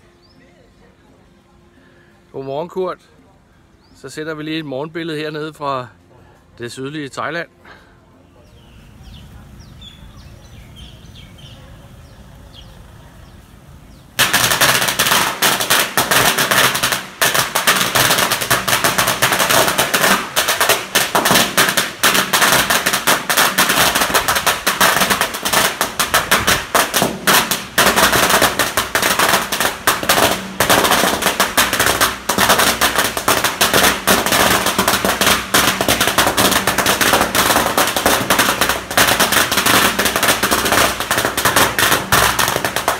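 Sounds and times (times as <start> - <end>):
quiet outdoor ambience: 0.0 - 42.9
firecrackers crackling: 7.6 - 42.9.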